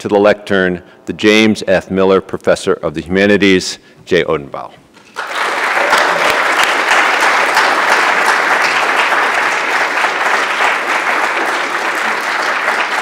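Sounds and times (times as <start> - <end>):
audience applauding: 5.2 - 13.0.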